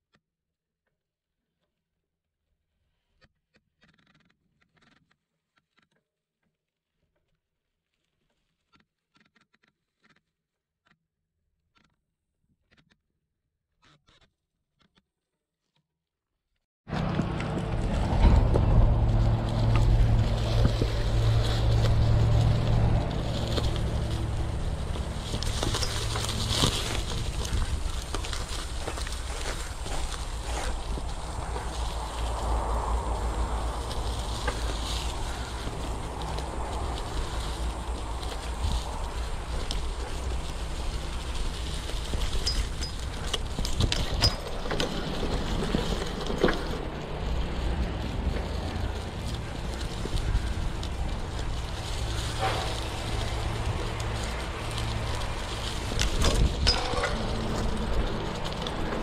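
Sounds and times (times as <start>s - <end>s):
bike clicks and rattles: 16.9s - 59.0s
bike tyres rumbling on dirt: 16.9s - 59.0s.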